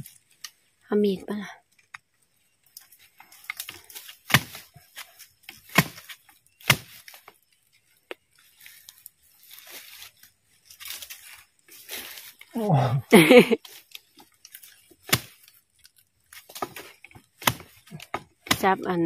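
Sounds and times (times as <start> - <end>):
dry leaves scraping and rustling: 2.7 - 12.6, 13.6 - 19.0
spade striking soil: 3.5 - 7.3, 14.6 - 15.6, 16.3 - 19.0.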